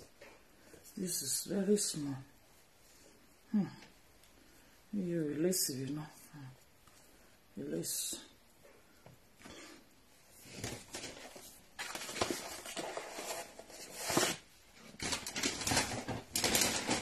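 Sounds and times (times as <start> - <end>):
packaging crinkling and rustling: 10.4 - 17.0.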